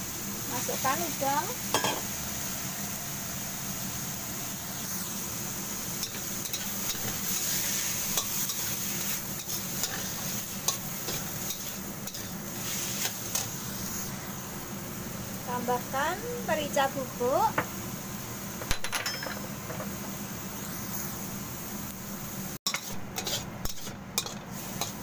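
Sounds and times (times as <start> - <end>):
food sizzling in oil: 0.0 - 25.0
metal spatula scraping a wok: 6.0 - 13.9, 22.7 - 25.0.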